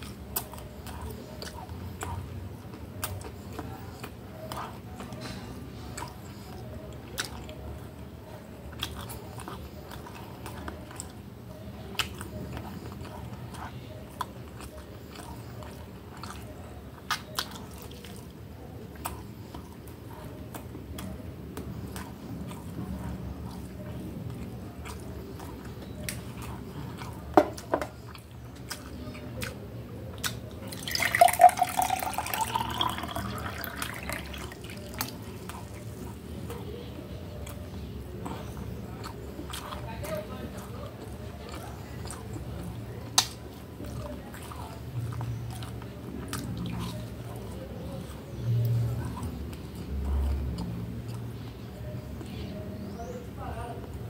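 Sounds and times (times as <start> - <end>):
chewing and biting crispy food: 0.0 - 54.0.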